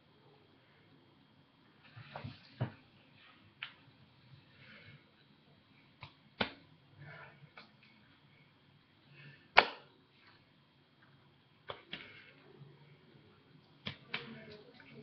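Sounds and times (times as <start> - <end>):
hands tapping and slapping: 6.0 - 6.6, 13.8 - 14.6.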